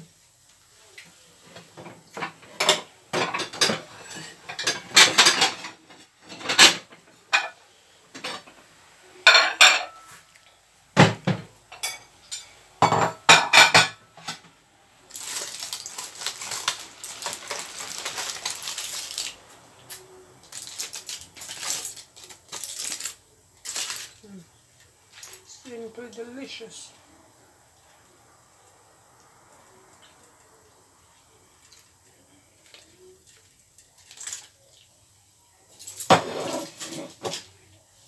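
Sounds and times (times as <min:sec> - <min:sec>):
aluminium foil rustling: 0:15.0 - 0:26.9, 0:29.5 - 0:38.0.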